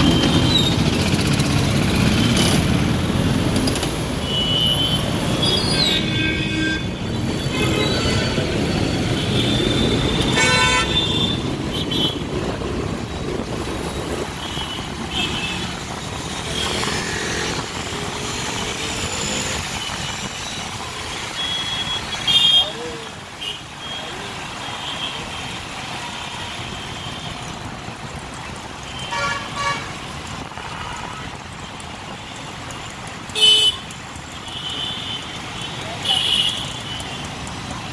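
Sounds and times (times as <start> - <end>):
motorcycle and car engines: 0.0 - 6.0, 6.8 - 37.9
vehicle horns honking: 4.2 - 12.2, 29.0 - 30.0, 33.3 - 33.9, 34.5 - 37.3.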